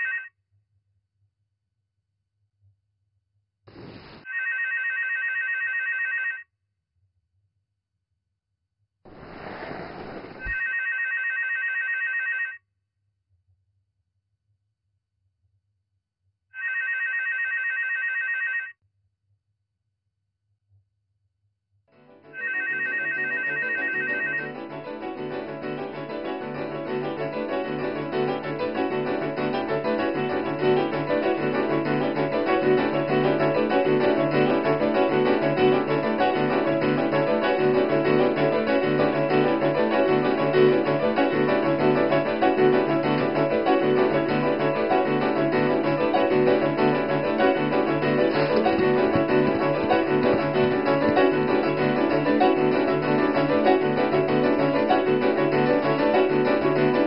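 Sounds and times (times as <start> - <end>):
piano music: 22.1 - 57.0.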